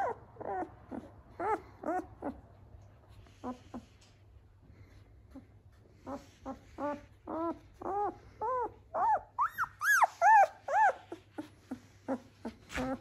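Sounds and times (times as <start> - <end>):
puppy whimpering squeals: 0.0 - 2.4, 6.0 - 13.0.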